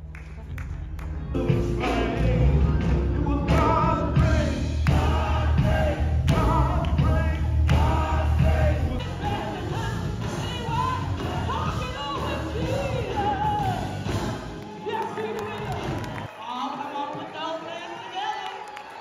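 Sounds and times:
heavy bass line: 0.0s - 14.5s
person singing: 1.4s - 15.7s
strong drum hits: 3.5s - 9.4s.

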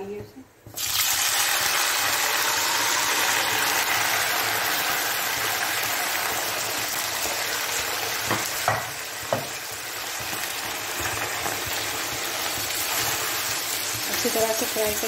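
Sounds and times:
meat sizzling in hot oil: 0.7s - 15.0s
spatula knocking against pan: 8.3s - 9.6s.

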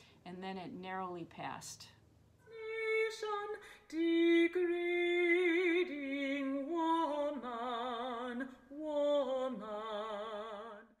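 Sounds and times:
person singing with vibrato: 2.5s - 11.0s.

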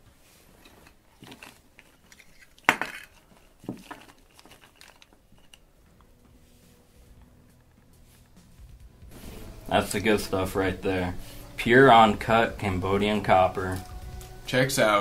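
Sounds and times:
cloth bag rustling: 0.0s - 5.7s
hard objects clinking and knocking: 0.5s - 6.1s.

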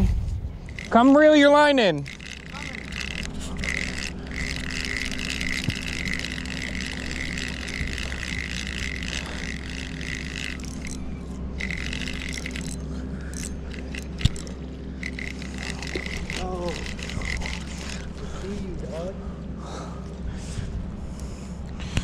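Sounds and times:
fishing reel whirring: 0.6s - 18.6s.

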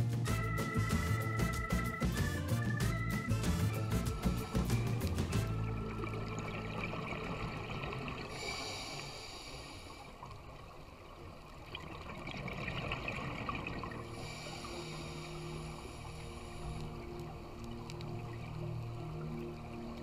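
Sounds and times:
hissing regulator inhalation: 3.7s - 5.6s, 8.3s - 10.2s, 14.1s - 17.4s.

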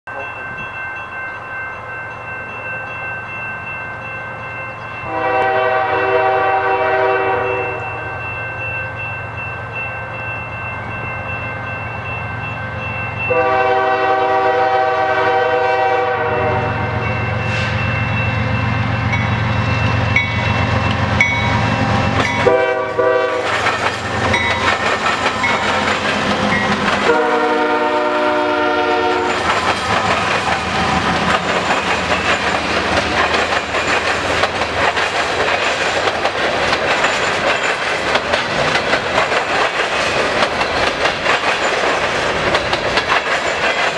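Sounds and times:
diesel locomotives rumbling: 0.1s - 43.9s
locomotive air horn: 5.0s - 8.2s, 13.3s - 17.8s, 22.4s - 23.5s, 27.0s - 29.4s
train wheels clattering: 16.9s - 43.9s.

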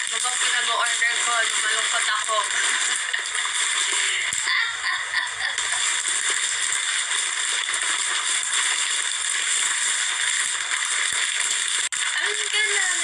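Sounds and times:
plastic packaging crinkling: 5.4s - 13.0s.

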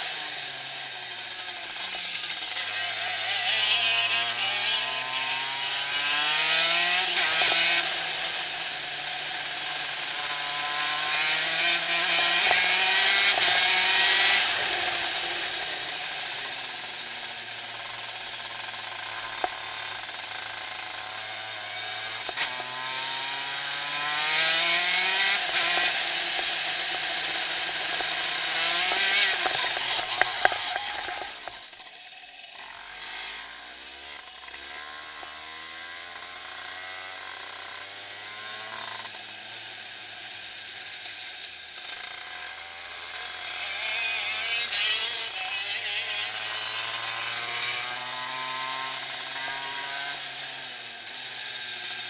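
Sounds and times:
kart engine shifting gears: 0.0s - 52.0s.

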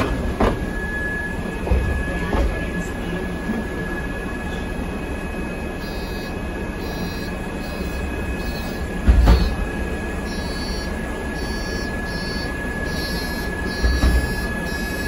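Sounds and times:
bus engine idling: 0.0s - 15.0s
high whine: 3.5s - 15.0s
faint high beeps: 5.8s - 15.0s
heavy thump: 9.1s - 9.6s.

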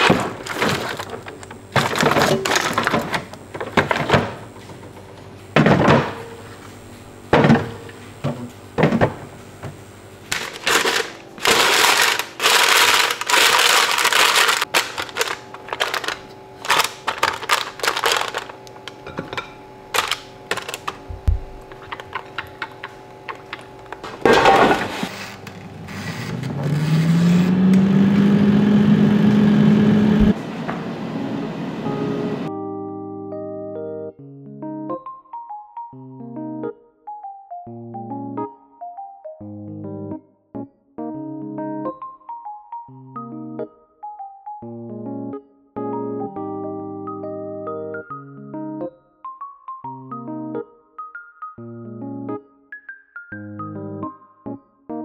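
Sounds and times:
plastic bins knocked and clicked: 0.0s - 6.3s, 7.4s - 19.0s, 20.0s - 25.1s
appliance motor humming: 9.6s - 32.5s.

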